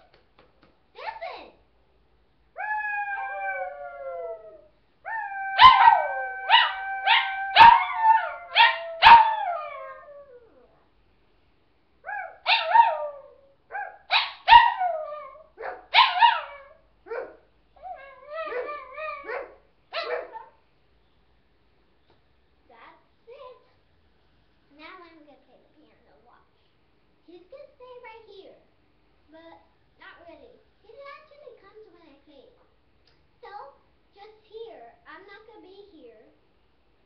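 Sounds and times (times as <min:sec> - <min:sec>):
dog howling: 0:02.6 - 0:10.7, 0:12.1 - 0:20.4
dog barking and yipping: 0:05.6 - 0:09.5, 0:12.1 - 0:20.6.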